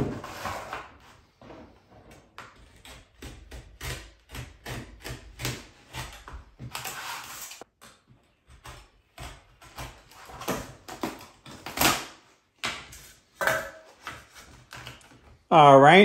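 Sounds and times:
knife cutting plastic sheet: 2.5 - 7.7, 8.5 - 13.3.

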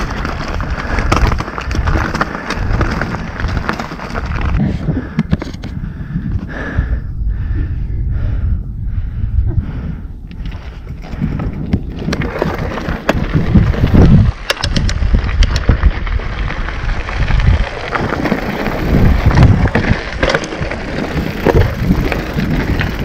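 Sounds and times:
tyres crunching on gravel: 0.0 - 4.6, 11.9 - 23.0
bike rattling and knocking: 0.0 - 6.6, 10.4 - 23.0.

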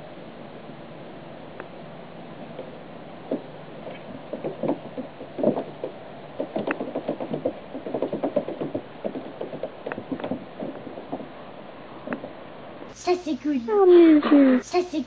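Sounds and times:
kitten paws scrabbling on plastic: 3.3 - 11.3.

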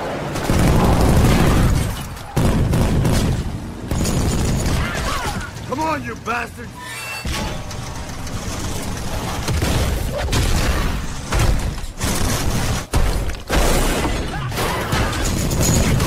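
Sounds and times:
gunfire: 0.3 - 5.6
heavy truck engine: 5.5 - 9.8.

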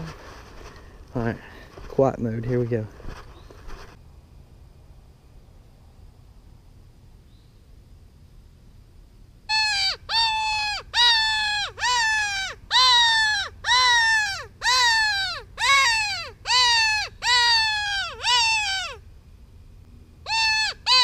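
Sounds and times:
predator call cries: 9.5 - 19.0, 20.2 - 21.0.

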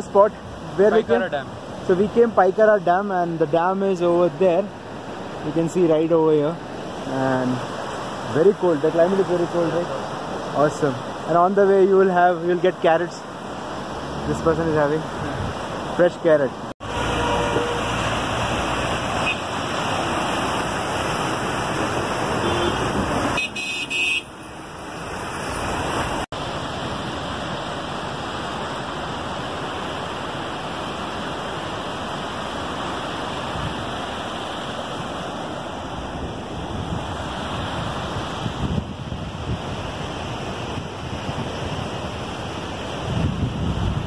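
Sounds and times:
river water rushing through rapids: 0.0 - 44.0
vehicle horn toot: 16.9 - 18.0, 19.2 - 19.5, 22.4 - 24.3.

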